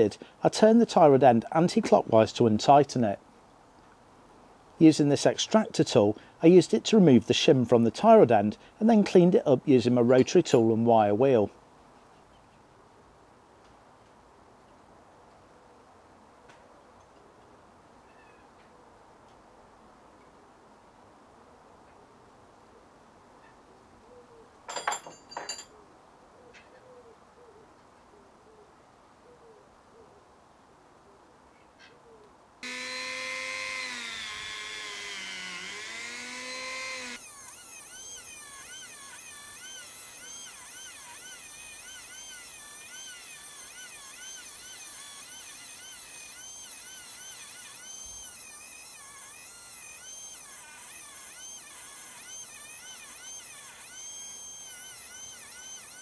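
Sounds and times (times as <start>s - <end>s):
rotary tool wire brush whine: 32.6s - 56.0s.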